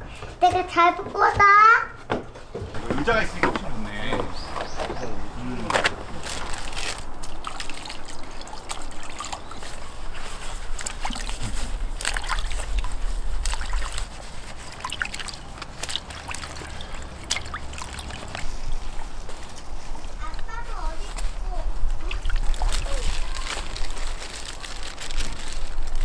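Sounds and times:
water sloshing and trickling: 3.0s - 26.0s
short water splashes: 4.0s - 20.4s, 21.8s - 25.0s.

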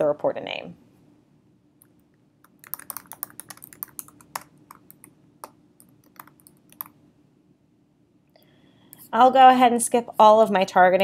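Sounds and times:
typing on computer keyboard: 2.4s - 7.0s.

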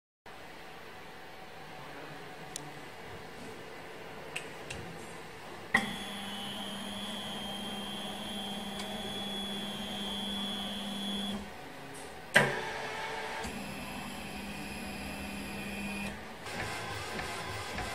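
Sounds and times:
motor hum with high whine: 1.7s - 17.9s.

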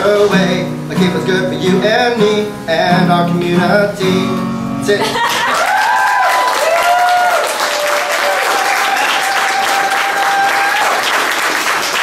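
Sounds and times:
long held whoops: 5.2s - 11.0s
audience clapping and cheering: 5.2s - 12.0s.

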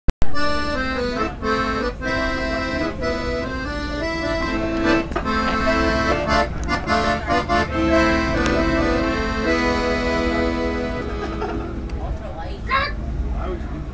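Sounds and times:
piano accordion playing a tune: 0.2s - 12.1s.

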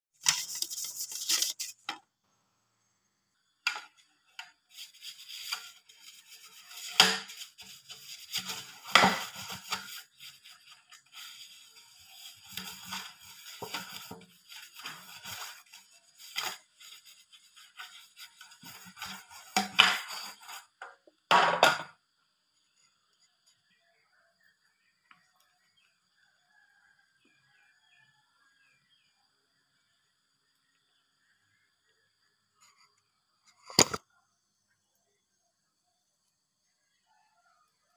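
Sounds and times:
pastry brush scraping a metal pan: 0.2s - 2.0s, 3.7s - 20.8s.

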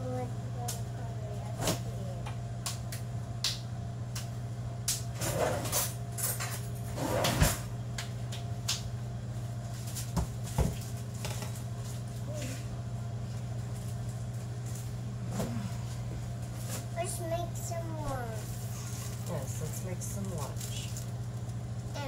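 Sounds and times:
steady low hum: 0.0s - 22.0s
refrigerator door and cupboards shutting: 5.2s - 7.7s.

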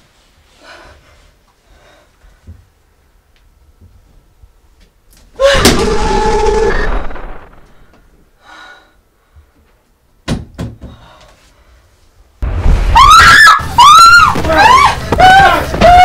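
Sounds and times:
woman screaming: 13.0s - 16.0s.

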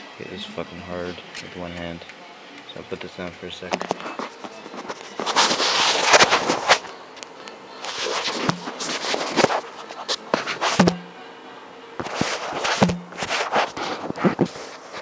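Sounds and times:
camera handling rustling and scraping: 3.7s - 10.9s.

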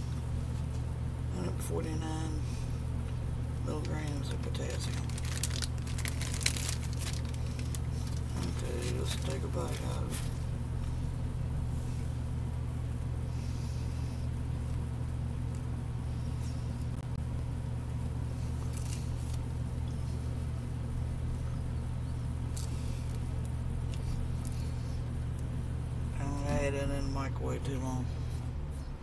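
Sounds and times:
low motor hum: 0.0s - 29.0s
man chewing with faint crackles: 2.8s - 11.2s, 14.2s - 26.1s.

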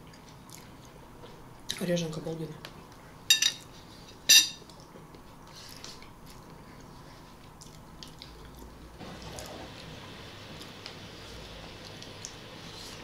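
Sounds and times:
wet mouth eating sounds: 0.0s - 1.0s, 4.6s - 9.6s.

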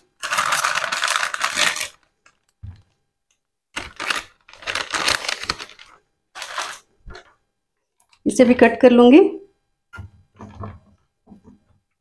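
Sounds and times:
plastic packet crinkling: 0.0s - 2.9s, 3.7s - 7.3s.

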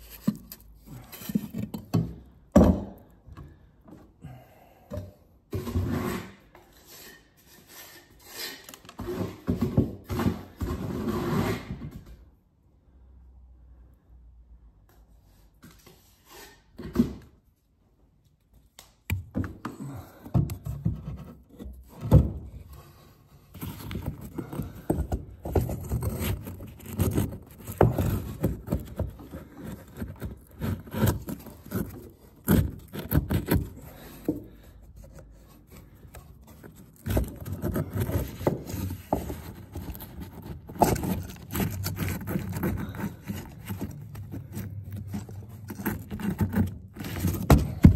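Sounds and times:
brick scraping against brick: 5.5s - 12.0s, 19.8s - 47.9s.

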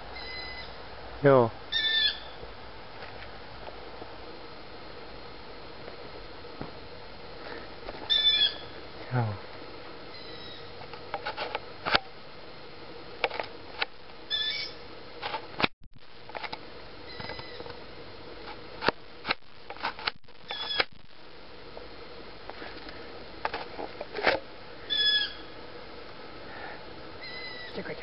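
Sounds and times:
young owl high calls: 0.1s - 0.8s, 1.7s - 2.4s, 8.1s - 8.8s, 10.1s - 10.8s, 14.3s - 14.8s, 17.1s - 17.7s, 20.5s - 20.8s, 24.8s - 25.6s, 27.2s - 27.9s.

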